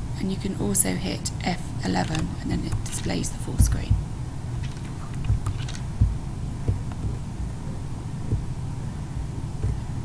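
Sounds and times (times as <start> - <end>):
steady low hum: 0.0 - 10.0
soft irregular low thumps: 2.0 - 10.0.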